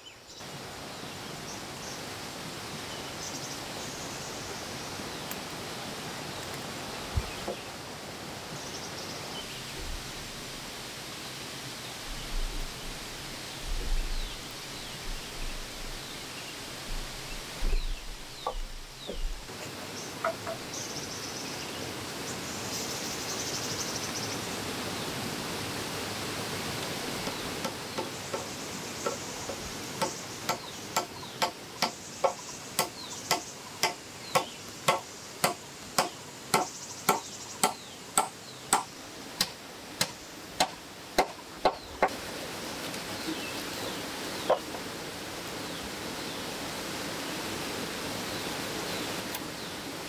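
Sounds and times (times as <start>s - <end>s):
insect buzz: 0.0s - 50.0s
rushing water: 0.0s - 50.0s
hammer striking nails into wood: 30.0s - 41.8s.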